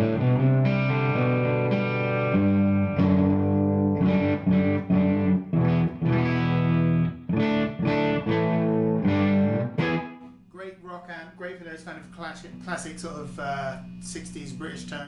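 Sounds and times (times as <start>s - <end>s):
electric guitar chords and notes: 0.0s - 10.4s.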